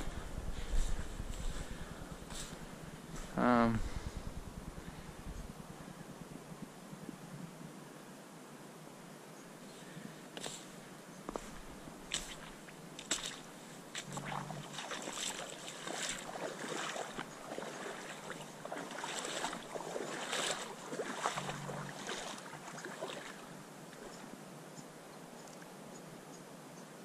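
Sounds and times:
footsteps splashing in water: 12.1 - 24.1
light ticks: 24.8 - 25.7.

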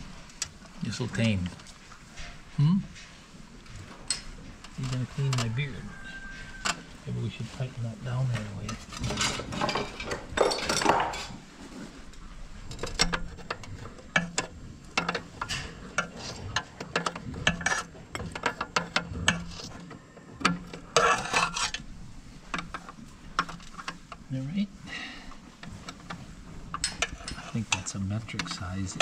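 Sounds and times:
wrench scraping rattle: 8.2 - 11.4, 12.7 - 24.4, 25.3 - 29.0.

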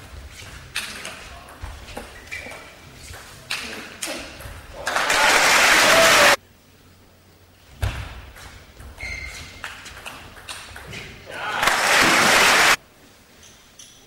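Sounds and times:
crowd applause: 4.8 - 6.4, 11.4 - 12.8.

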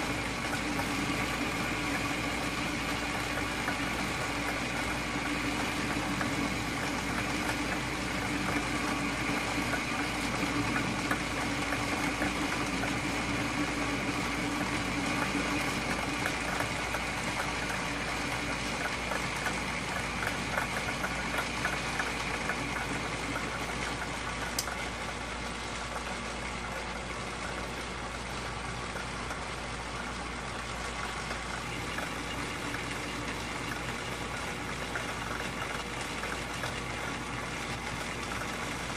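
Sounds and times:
metal lathe cutting: 0.0 - 25.2.

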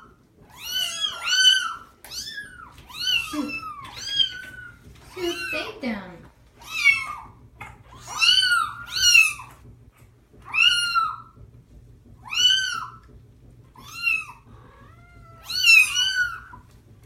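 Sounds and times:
kittens meowing: 0.0 - 5.7, 6.6 - 9.6, 10.4 - 11.4, 12.2 - 13.0, 13.8 - 16.7.

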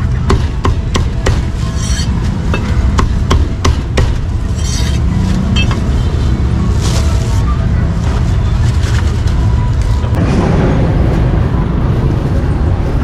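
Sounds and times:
cleaver chopping on wooden block: 0.3 - 4.2
steady low rumble: 1.6 - 13.0.

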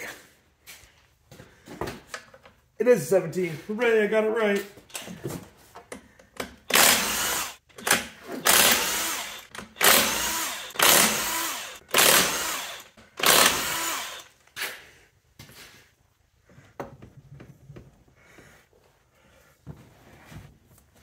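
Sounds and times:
impact wrench bursts: 6.5 - 14.8.

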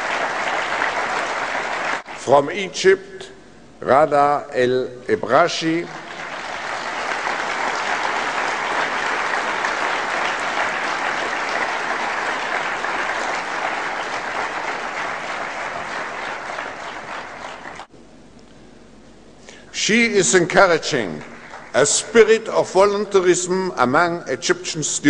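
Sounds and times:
audience applauding: 0.0 - 2.3, 5.6 - 17.9, 20.6 - 22.5.

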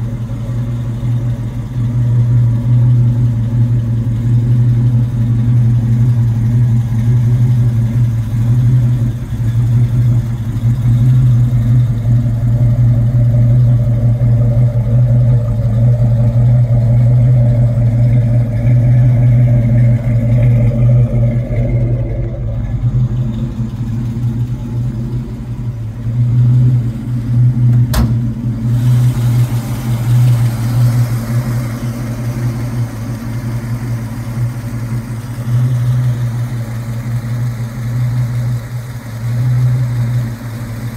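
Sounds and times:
car engine idling: 0.0 - 40.9.

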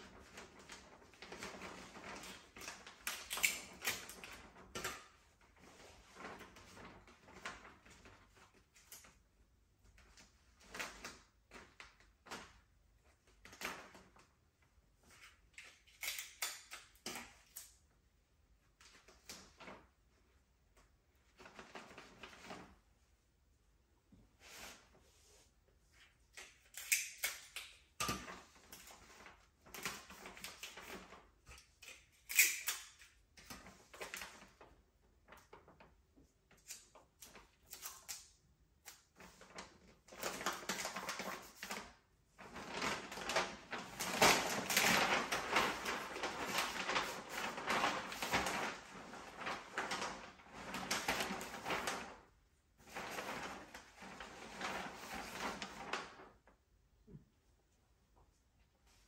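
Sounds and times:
wrapping paper rustling: 0.0 - 14.3, 28.2 - 56.5.

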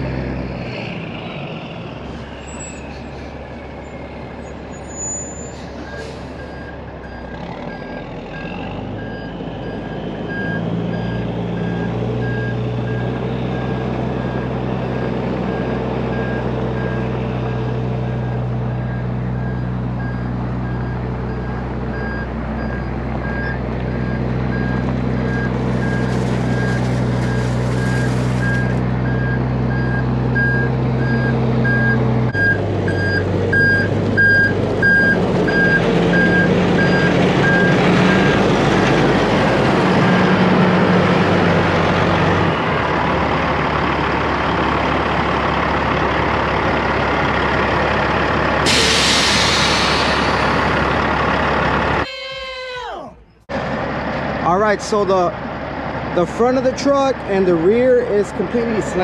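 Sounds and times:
diesel truck engine: 0.0 - 52.1, 53.1 - 59.0
reversing alarm beeps: 18.2 - 38.4.

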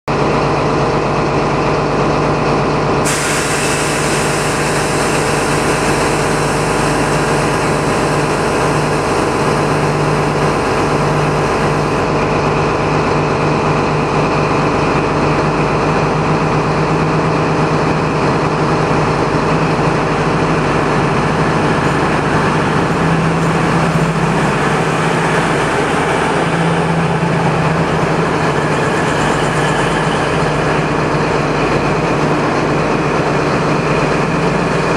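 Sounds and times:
diesel train engines under power: 0.1 - 34.9
hiss: 3.0 - 12.0.

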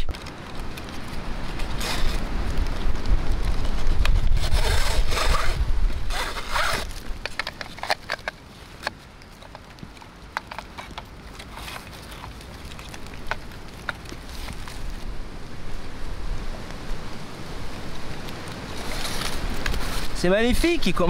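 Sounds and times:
wind rumbling on microphone: 0.0 - 21.0
strap rasping through buckle: 3.6 - 14.9.

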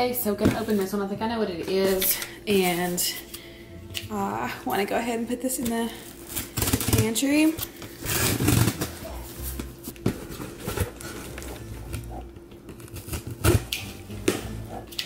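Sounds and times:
box cutter cutting tape: 8.0 - 9.2, 12.7 - 14.6.

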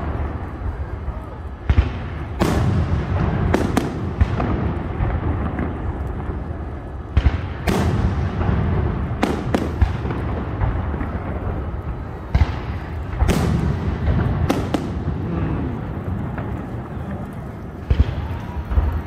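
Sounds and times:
fireworks bangs: 0.0 - 19.0
steady low rumble: 0.0 - 19.0.

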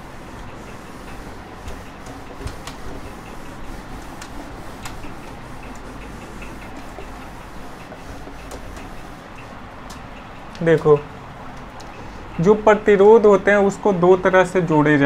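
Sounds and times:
cloth rubbing on whiteboard: 0.0 - 9.7.

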